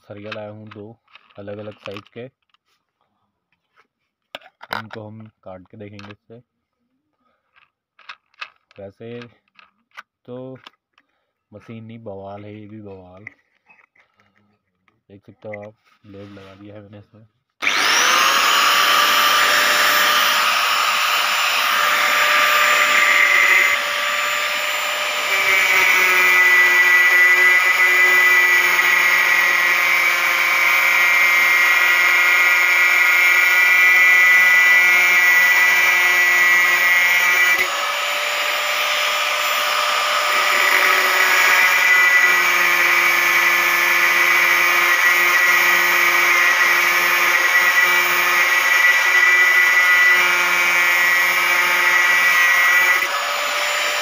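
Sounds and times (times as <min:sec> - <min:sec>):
angle grinder cutting steel: 0:17.6 - 0:54.0.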